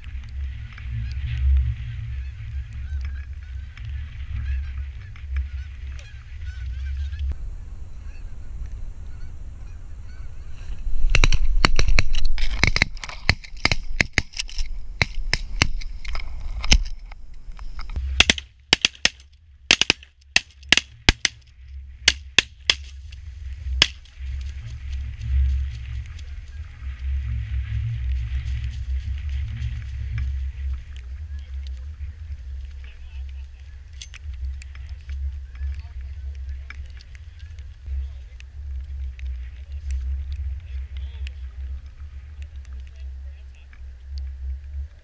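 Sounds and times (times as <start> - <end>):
wind rumbling on microphone: 0.0 - 45.0
geese honking: 0.4 - 10.9, 22.2 - 34.0.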